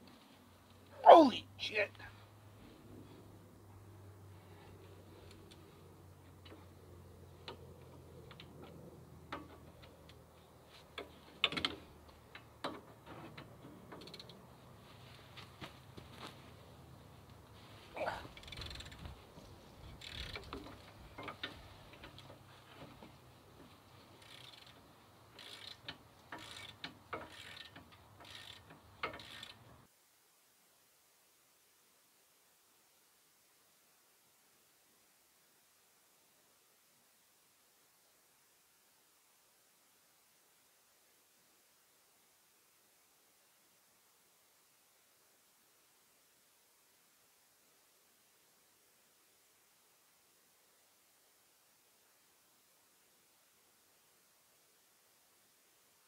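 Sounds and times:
ratchet wrench clicking: 18.4 - 19.0, 20.0 - 20.6, 24.2 - 24.8, 25.4 - 29.6.

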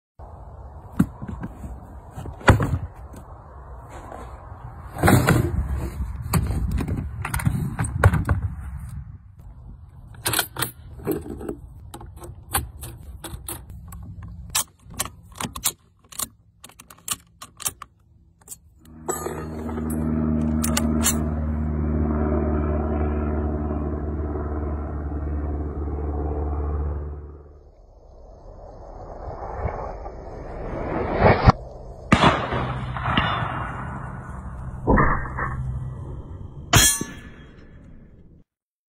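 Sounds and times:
steady low hum: 18.8 - 38.4.

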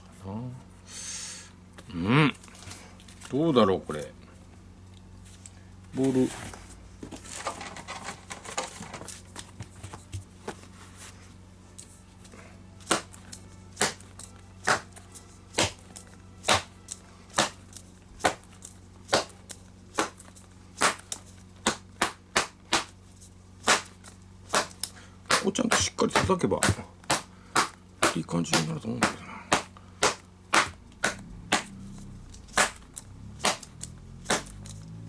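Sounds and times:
ball pounding leather glove: 12.8 - 13.2, 13.8 - 18.5, 19.1 - 20.2, 20.8 - 23.0, 23.6 - 34.6.

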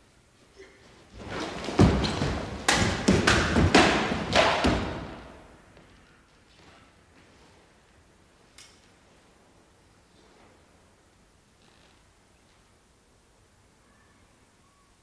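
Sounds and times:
pieces thudding on wooden floor: 1.2 - 5.3.

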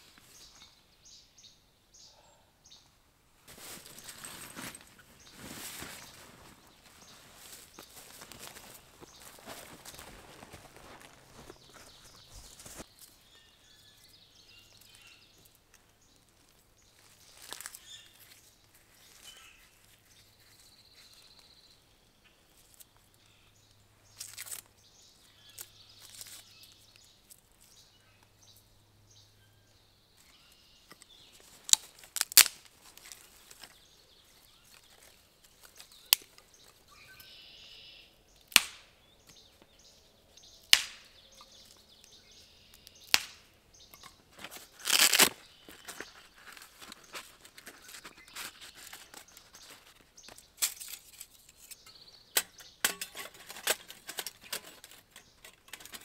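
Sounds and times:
dry sticks snapping: 24.2 - 24.7, 30.2 - 33.8, 34.7 - 37.3, 38.4 - 39.4, 40.6 - 47.2, 50.3 - 56.0
bark tearing: 31.6 - 33.2, 44.5 - 49.4.

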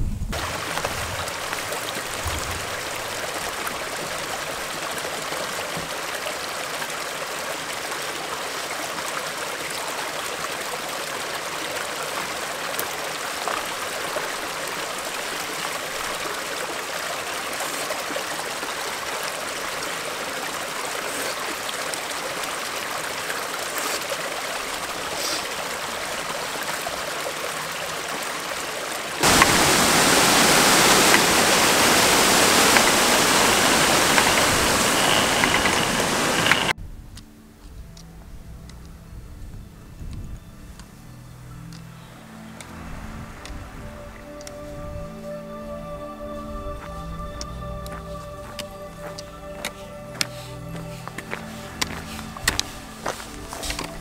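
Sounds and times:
stream rushing: 0.3 - 36.8, 42.0 - 54.0
whitewater rushing: 0.4 - 36.8.

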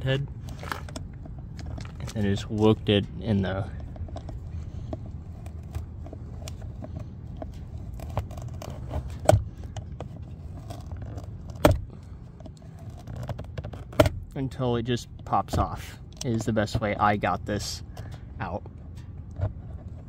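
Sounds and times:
screwdriver scraping plastic: 3.8 - 11.8, 12.4 - 14.1.

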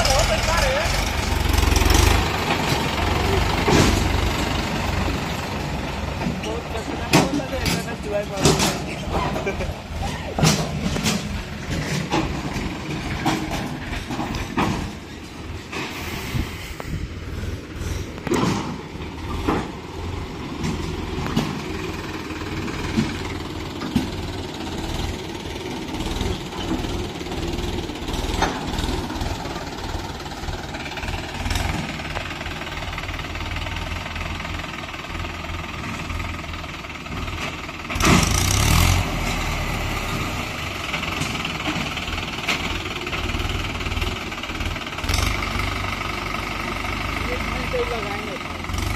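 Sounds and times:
diesel engines running: 0.0 - 48.9.

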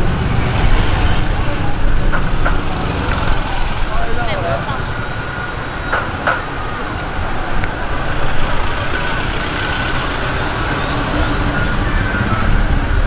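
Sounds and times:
car engines in slow traffic: 0.0 - 13.0
voices in background: 0.6 - 13.0.

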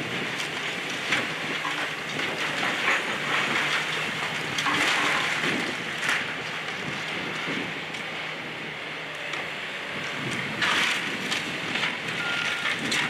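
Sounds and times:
diesel engine humming: 0.0 - 13.0
falling brick and debris: 0.7 - 6.3.

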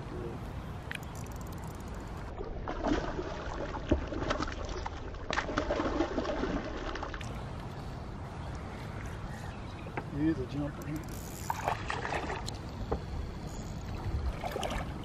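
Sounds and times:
water splashing beside boat: 2.1 - 8.0, 11.4 - 13.0, 13.8 - 15.0.

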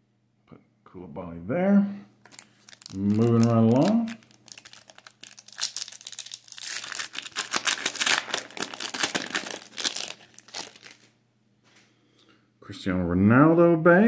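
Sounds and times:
foil wrapper crinkling: 2.2 - 11.2.

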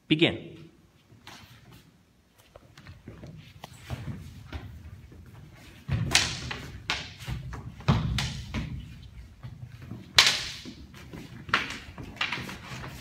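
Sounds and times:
training swords knocking: 5.8 - 13.0.

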